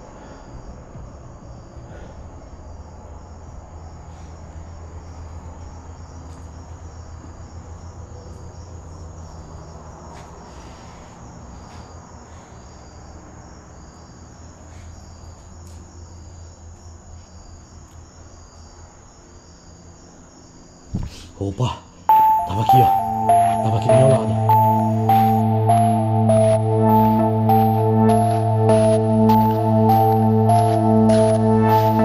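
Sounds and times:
crickets chirping: 0.0 - 32.0.

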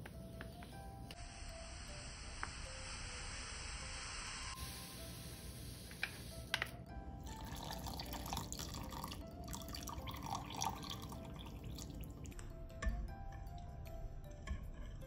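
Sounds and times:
background music: 0.0 - 15.0
hot water pouring into glass bowl: 7.2 - 12.5.

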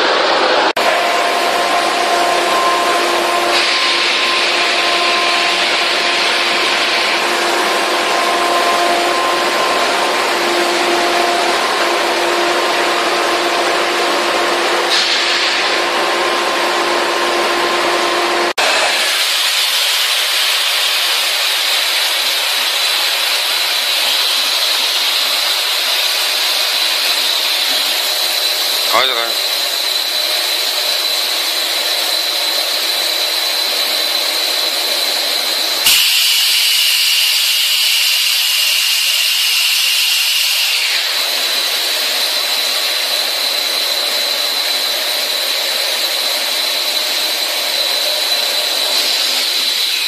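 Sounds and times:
production machinery humming: 0.0 - 50.0
hiss with high whine: 19.1 - 50.0.

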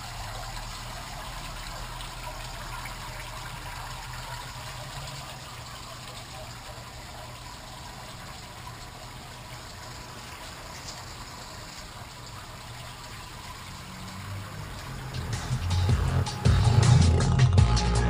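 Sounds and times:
water trickling: 0.0 - 17.4
music: 14.6 - 18.0.

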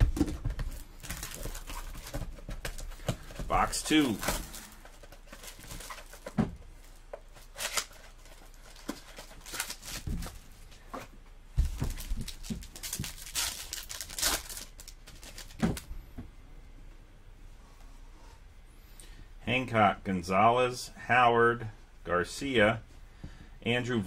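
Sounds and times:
foil wrapper tearing and crinkling: 7.4 - 10.1, 12.0 - 15.6.

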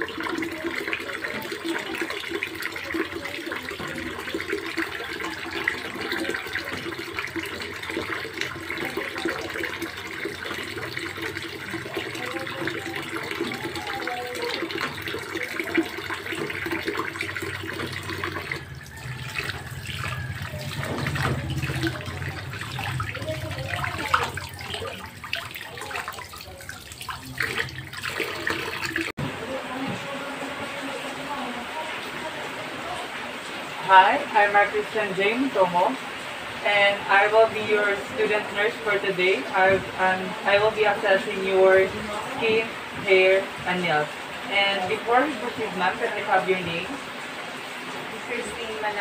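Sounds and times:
faucet water running into sink: 0.0 - 29.2.

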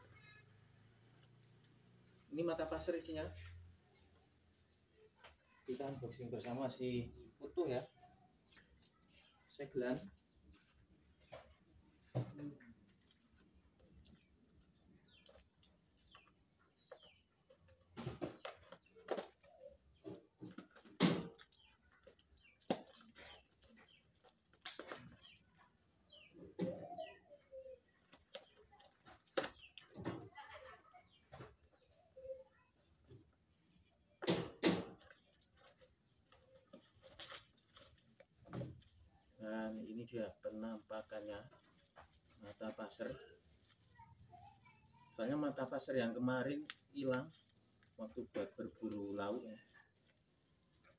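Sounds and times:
high insect drone: 0.0 - 50.9.

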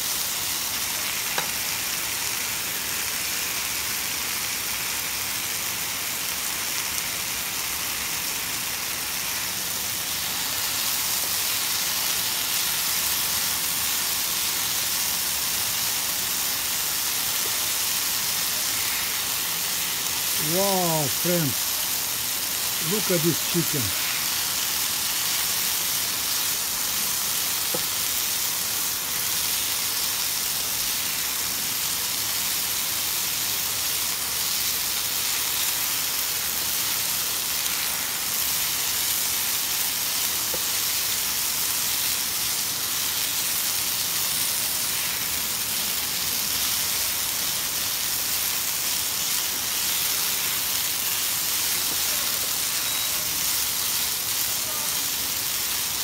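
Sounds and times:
chicken sizzling in a pan: 0.0 - 56.0.

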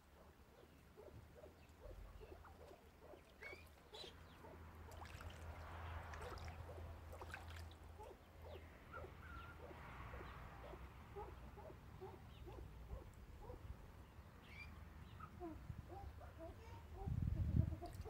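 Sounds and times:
soft short bird calls: 0.5 - 5.4
water splashing and trickling: 2.0 - 8.4, 17.6 - 18.0.

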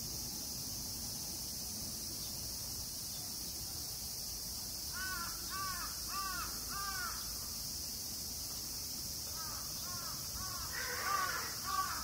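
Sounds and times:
insects hissing: 0.0 - 12.0
crow cawing: 5.0 - 7.2, 9.3 - 12.0.

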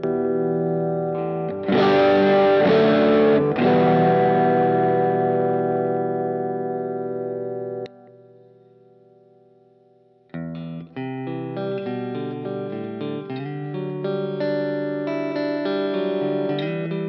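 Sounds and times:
distorted electric guitar chords: 0.0 - 8.9, 10.4 - 17.0.

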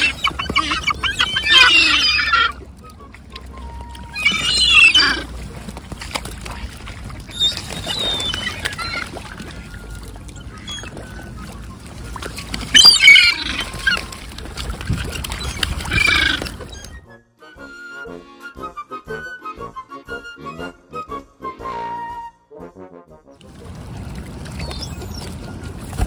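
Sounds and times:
gulls squawking: 0.0 - 5.6, 7.1 - 17.1.

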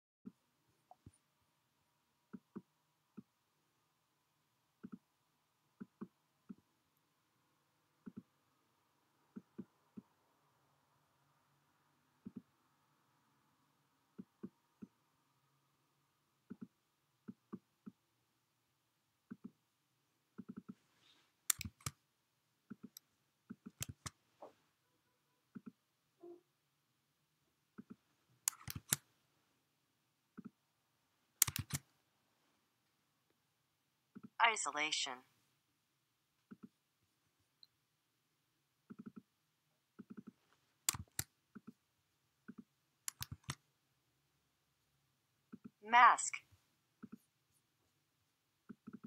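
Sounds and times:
computer mouse clicks: 4.8 - 5.1, 8.0 - 8.4, 12.2 - 12.5, 16.5 - 18.0, 20.4 - 20.8, 21.5 - 22.0, 22.7 - 24.2, 27.8 - 29.1, 31.4 - 31.9, 36.4 - 36.8, 38.9 - 39.3, 40.0 - 41.8, 42.4 - 43.6, 48.7 - 49.0.

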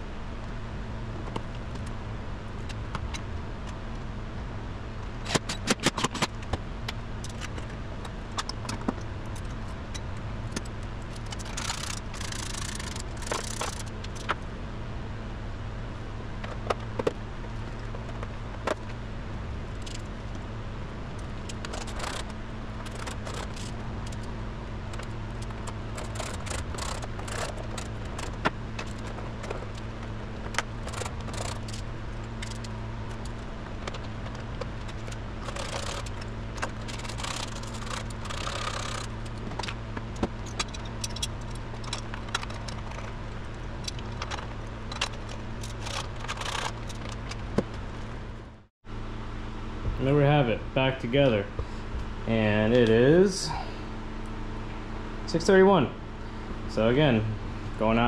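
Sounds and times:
steady low hum: 0.0 - 58.0
hand tools clicking and clinking: 24.9 - 31.8, 32.4 - 43.1, 43.8 - 47.4.

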